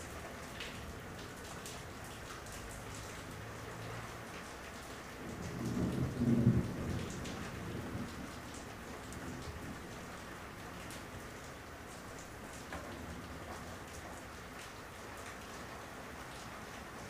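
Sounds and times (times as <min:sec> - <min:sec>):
heavy rain: 0:00.0 - 0:17.0
thunder rumbling: 0:05.3 - 0:08.5.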